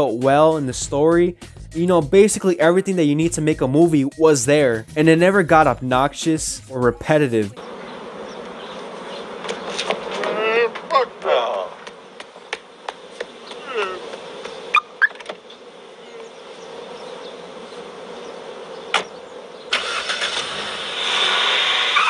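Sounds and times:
car engine starting and running: 19.0 - 22.0.

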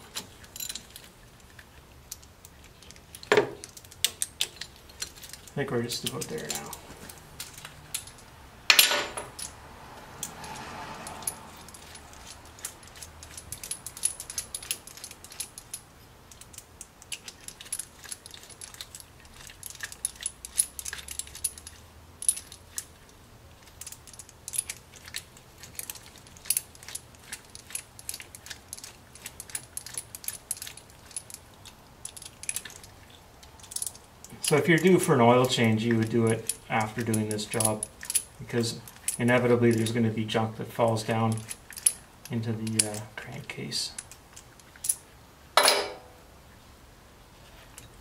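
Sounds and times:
sharp metallic clank: 8.7 - 9.4, 45.6 - 46.2.

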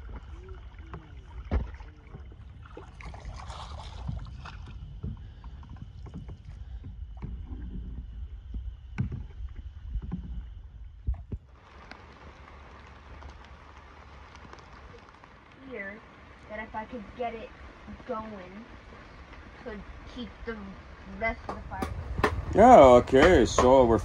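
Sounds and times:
paddle knocking against canoe: 0.0 - 12.0, 21.4 - 24.0
paddle strokes in water: 0.0 - 24.0
steady hiss: 11.5 - 24.0.

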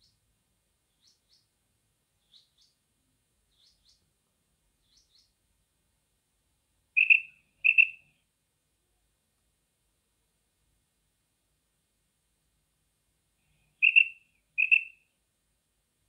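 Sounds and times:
quail calling: 7.0 - 8.0, 13.8 - 15.0.

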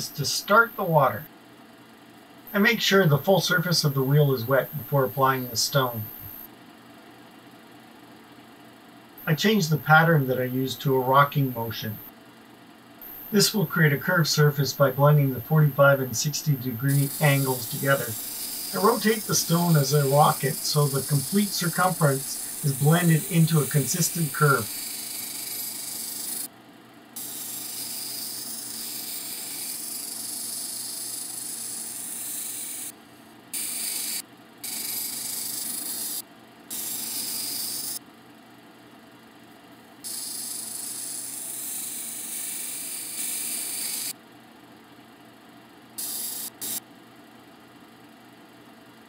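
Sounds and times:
machine motor hum: 13.0 - 26.5.

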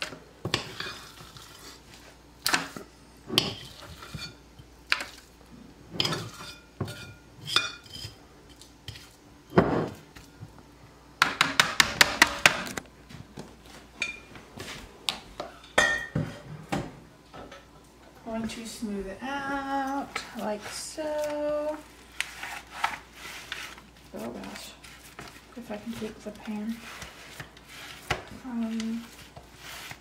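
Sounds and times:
spoon scraping a mixing bowl: 3.4 - 5.3, 5.9 - 9.2, 20.0 - 30.0.

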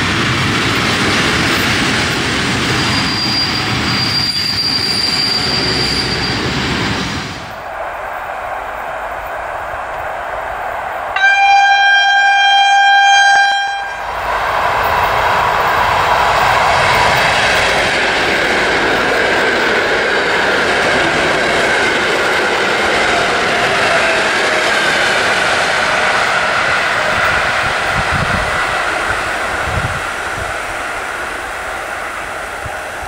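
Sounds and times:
train wheels rumbling on rail: 0.0 - 33.0
train whine falling in pitch: 11.1 - 18.2.

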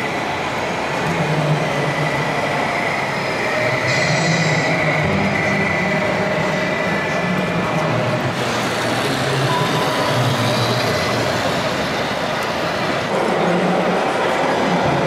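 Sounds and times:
rc model vehicles running: 7.1 - 14.8.

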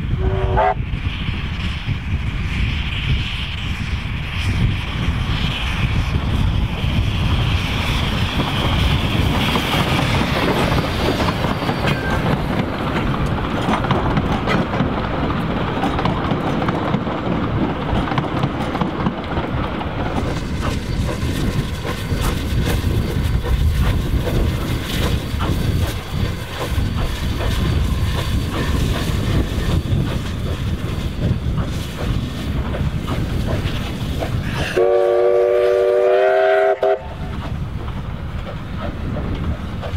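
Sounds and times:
steam locomotive running: 0.0 - 39.9
wheels clicking over rail joints: 8.4 - 34.7.

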